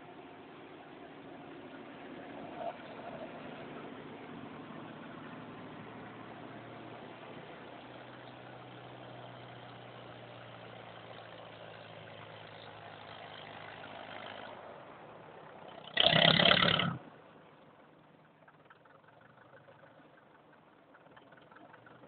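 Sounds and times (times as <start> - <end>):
old engine idling: 17.8 - 22.0.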